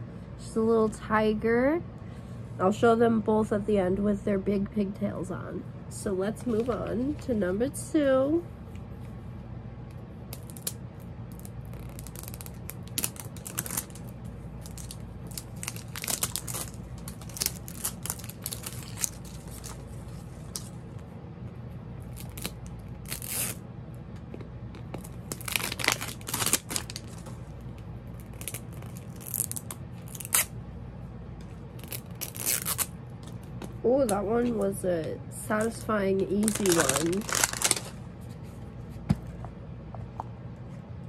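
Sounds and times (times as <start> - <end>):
wrapper crinkling and tearing: 10.3 - 20.7, 22.1 - 23.6, 24.9 - 27.4, 28.1 - 30.5, 31.8 - 32.9, 35.6 - 38.0.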